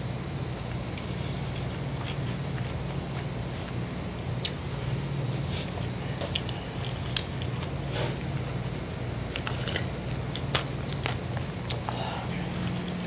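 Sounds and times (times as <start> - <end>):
chewing with wet mouth clicks: 0.7 - 3.3, 4.1 - 4.6, 5.4 - 8.6, 9.3 - 12.0.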